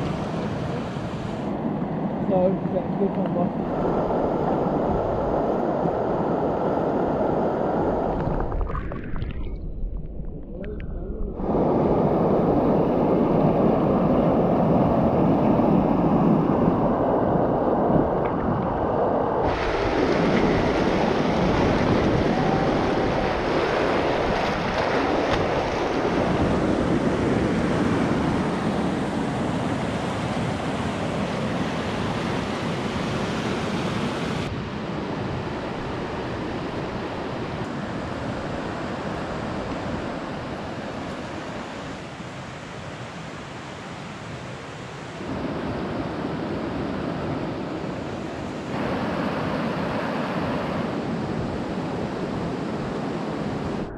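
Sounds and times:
whitewater rushing over rocks: 19.4 - 28.5.

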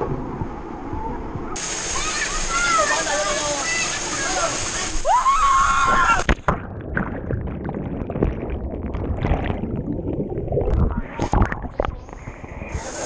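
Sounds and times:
splashing water: 5.8 - 12.3
muffled underwater rumble and bubbling: 6.4 - 13.0.

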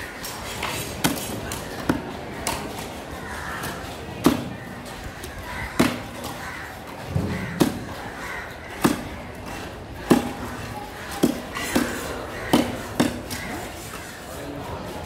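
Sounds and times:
knife chopping on wooden block: 8.8 - 9.2, 11.2 - 13.4.

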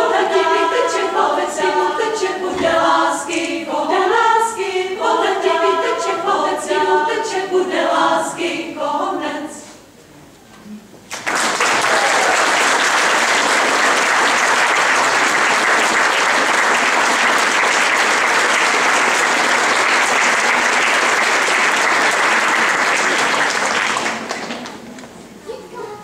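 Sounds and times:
audience applause: 11.1 - 24.9.

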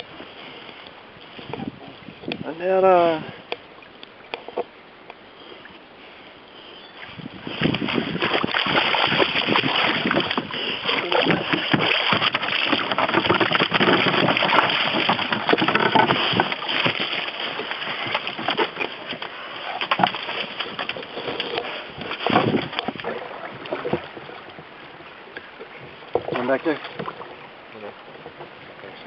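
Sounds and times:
knocks and scrapes against canoe: 0.0 - 1.9, 4.4 - 4.7, 7.1 - 28.7
water splashing and sloshing: 0.0 - 29.0.

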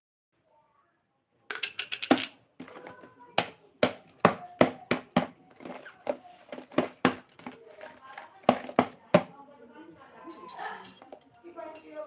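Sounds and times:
objects tapping and knocking: 1.5 - 9.4, 10.4 - 12.0.

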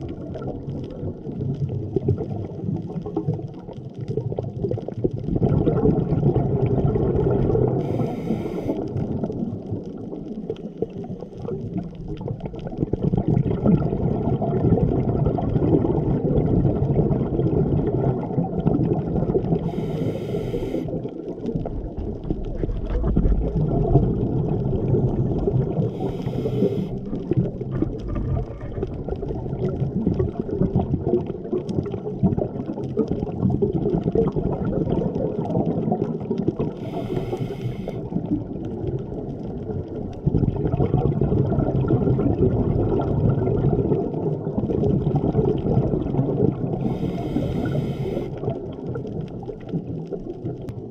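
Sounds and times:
exhaled bubbles gurgling: 0.0 - 50.9
regulator inhalation hiss: 7.8 - 8.8, 19.6 - 21.0, 25.9 - 27.1, 36.8 - 38.0, 46.8 - 48.4.

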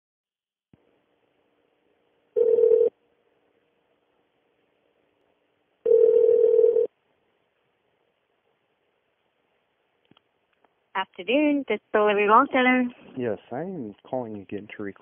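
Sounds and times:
telephone ringback tone: 2.4 - 2.9, 5.9 - 6.9.

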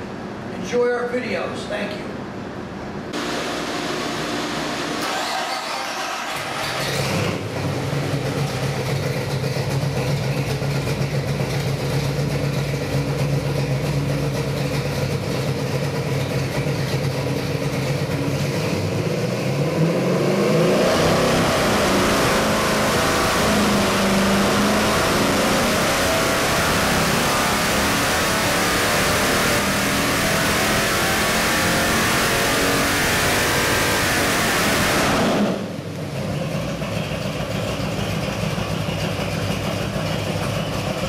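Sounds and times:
engine revving on dynamometer: 3.2 - 8.8, 18.4 - 35.9.

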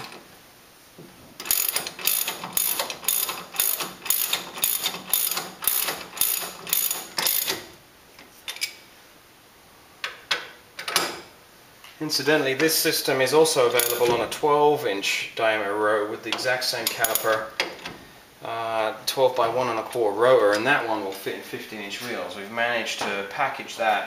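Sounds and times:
ratchet wrench clicking: 1.4 - 7.6.

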